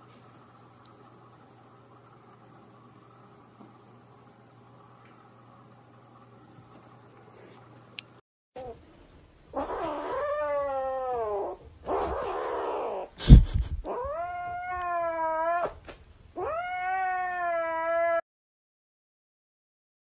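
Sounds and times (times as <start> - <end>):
kitten meowing: 16.4 - 18.2.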